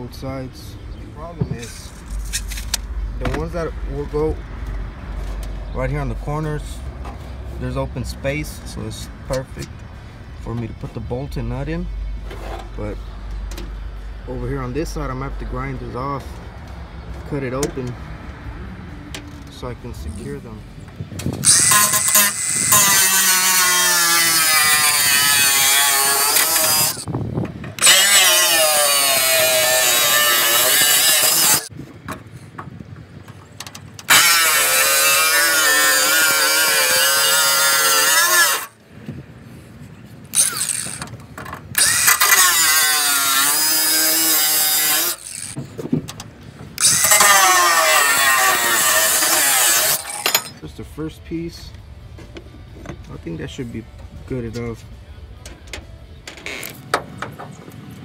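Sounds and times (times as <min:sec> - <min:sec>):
angle grinder cutting metal: 0:21.4 - 0:27.1, 0:27.8 - 0:31.7, 0:34.1 - 0:38.8, 0:40.3 - 0:41.0, 0:41.8 - 0:45.6, 0:46.8 - 0:50.6.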